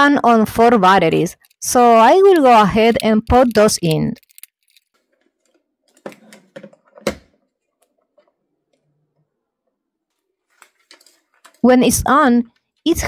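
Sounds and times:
plastic toy clicks: 1.3s - 4.8s.

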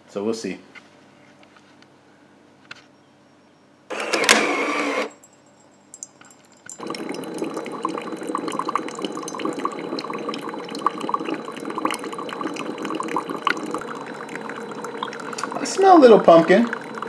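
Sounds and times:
coffee maker hissing: 3.9s - 5.1s, 6.8s - 17.0s
coffee pouring into a mug: 6.0s - 17.0s.

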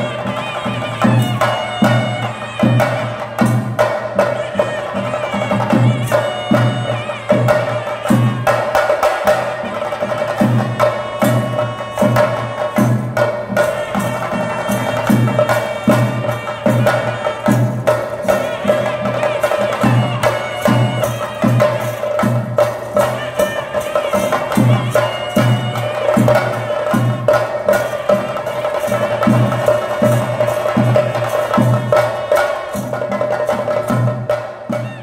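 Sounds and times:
drums and cymbals beating fast: 0.0s - 35.0s
wind instruments held melody: 0.0s - 35.0s.

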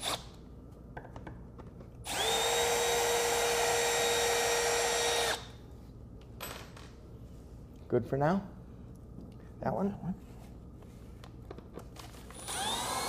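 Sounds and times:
cordless drill running: 0.0s - 0.2s, 2.0s - 5.5s, 12.3s - 13.0s.

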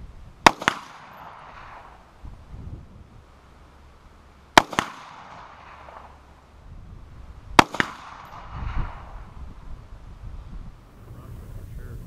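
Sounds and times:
rifle shot crack: 0.4s - 2.2s, 4.5s - 6.3s, 7.5s - 9.4s.

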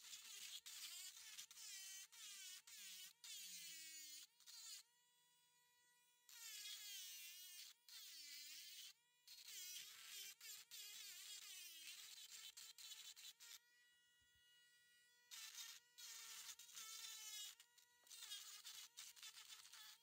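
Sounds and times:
rotary tool grinding rock: 15.3s - 20.0s.

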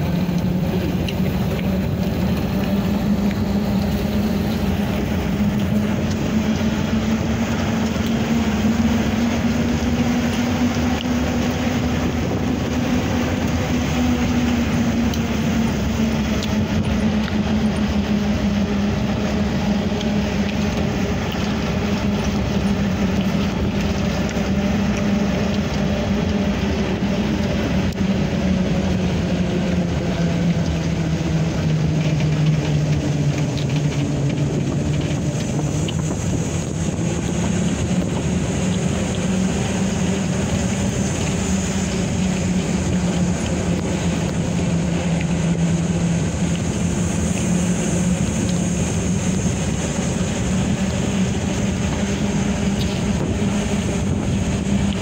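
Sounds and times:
road and wind noise: 0.0s - 55.0s
vehicle engine running: 0.0s - 55.0s.

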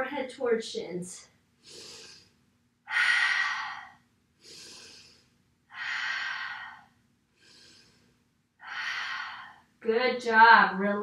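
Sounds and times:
woman breathing deeply: 1.6s - 9.7s.

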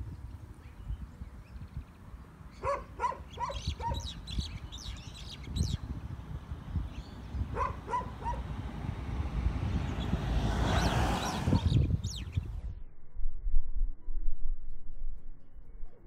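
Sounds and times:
birds chirping: 0.0s - 8.6s, 9.7s - 12.7s
dog barking: 2.6s - 4.1s, 7.5s - 8.4s.

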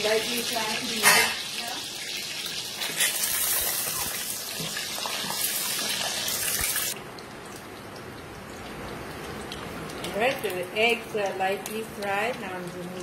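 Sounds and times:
eggs sizzling in hot oil: 0.0s - 7.0s.

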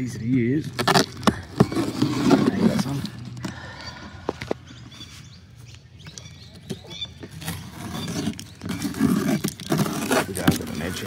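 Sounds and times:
adhesive clicks and squeaks: 6.1s - 11.0s
sticky tape peeling off: 7.4s - 11.0s.

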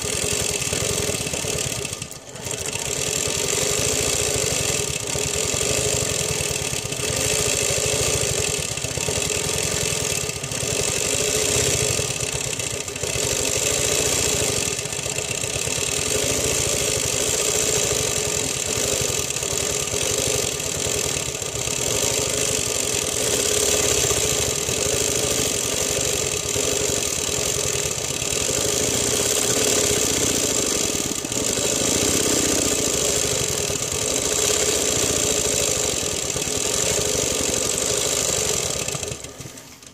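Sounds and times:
sewing needle stitching: 0.0s - 39.9s
quilting machine motor humming: 27.8s - 37.5s.

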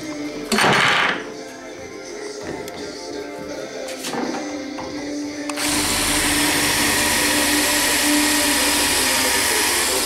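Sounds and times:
cordless drill drilling: 5.5s - 10.0s.

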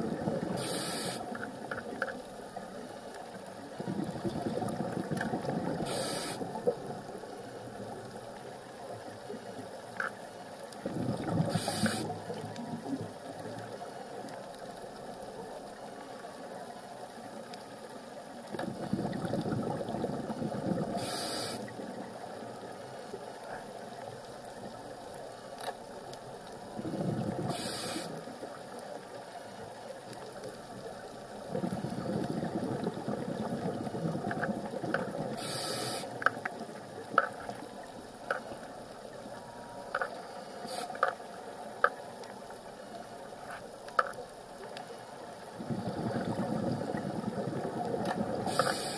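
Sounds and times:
regulator hiss: 0.4s - 1.4s, 5.8s - 6.7s, 11.5s - 12.2s, 20.9s - 21.8s, 27.4s - 28.3s, 35.3s - 36.3s, 40.3s - 41.1s, 48.4s - 48.9s.

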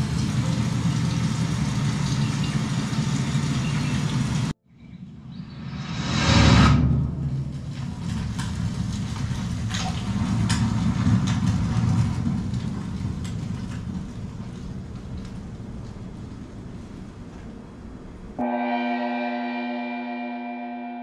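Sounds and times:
low rumbling drone: 0.0s - 16.2s
whooshing swell: 5.1s - 8.3s.

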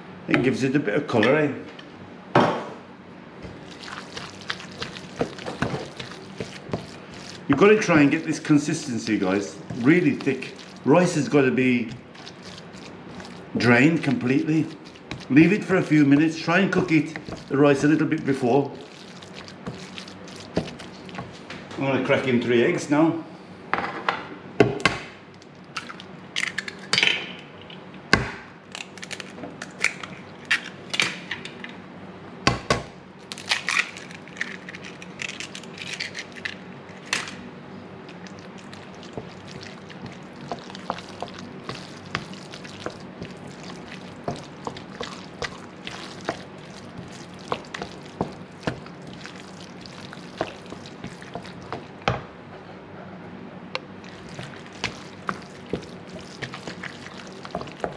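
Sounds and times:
low steady hum: 0.0s - 23.7s, 25.3s - 57.9s
wooden spoon scraping rice: 3.4s - 21.6s, 38.1s - 52.0s, 54.0s - 57.9s.

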